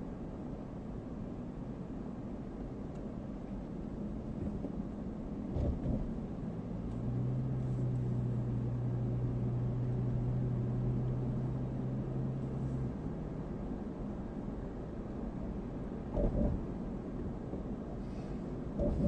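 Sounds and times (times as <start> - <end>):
road and engine rumble inside car: 0.0 - 19.0
steady low hum: 12.0 - 19.0.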